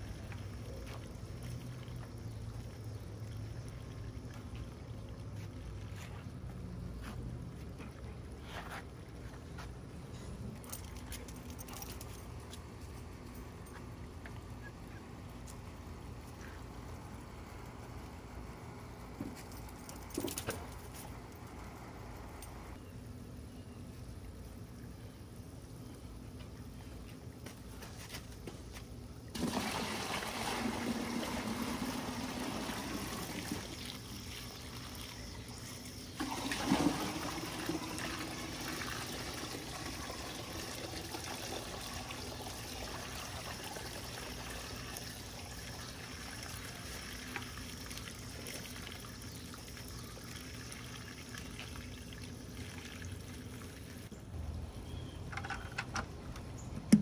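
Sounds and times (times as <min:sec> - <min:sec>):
water pouring into plastic bucket: 0:29.3 - 0:35.2, 0:36.1 - 0:54.0.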